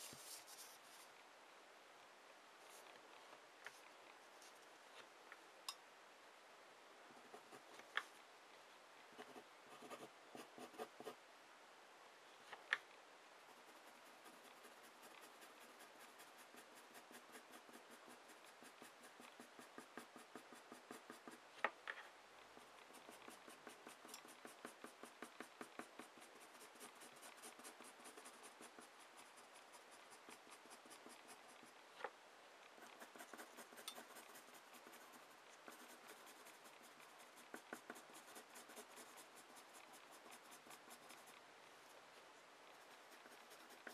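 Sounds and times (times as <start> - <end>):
pencil scratching on paper: 7.2 - 7.8, 9.2 - 11.2, 13.5 - 21.4, 22.6 - 31.8, 32.8 - 41.4, 42.7 - 43.9
sharp pencil ticks: 32.8 - 41.4.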